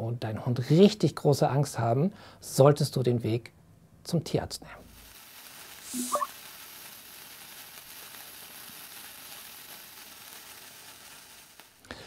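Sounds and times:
sparkler fizzing hiss: 4.8 - 12.0
short rising blip: 5.9 - 6.3.

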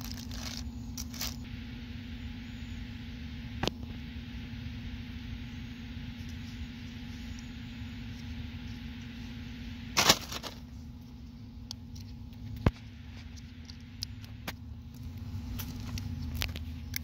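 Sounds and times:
cable rustling: 0.0 - 1.4, 10.0 - 10.8
low hum and rumble: 0.0 - 17.0.

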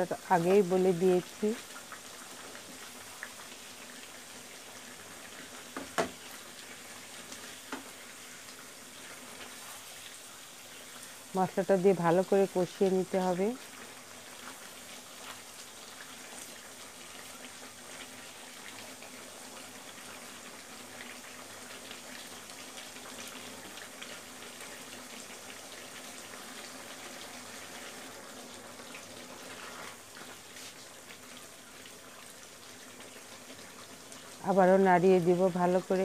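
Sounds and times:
meat sizzling in a pan: 0.0 - 36.0.

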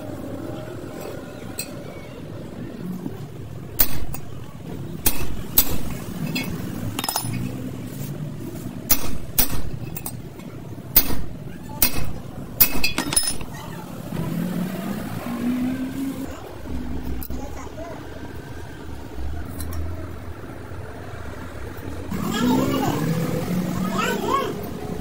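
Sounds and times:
low background murmur: 0.0 - 25.0
sharp clinks and knocks: 5.0 - 7.6, 8.9 - 13.6.

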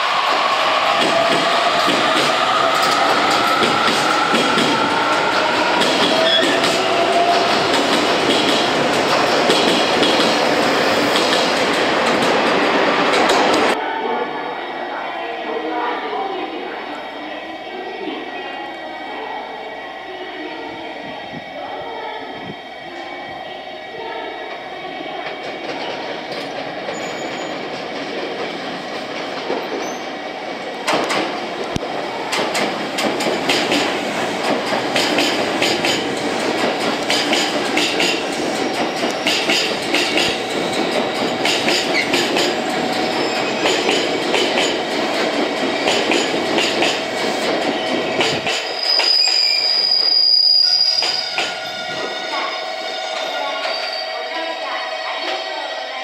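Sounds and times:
train wheels clattering: 0.1 - 13.8, 30.8 - 52.4
train brakes squealing: 0.3 - 8.1, 26.4 - 27.6, 47.7 - 55.6.

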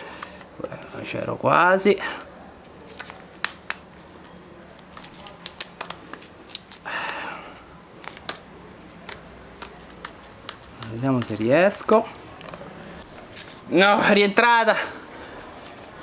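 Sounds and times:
screwdriver clicking and scraping metal: 9.1 - 12.6.

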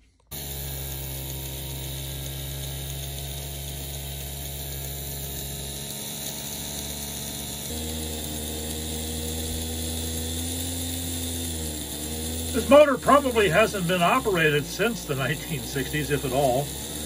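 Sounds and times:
electric motor whirring hum: 0.0 - 17.0.

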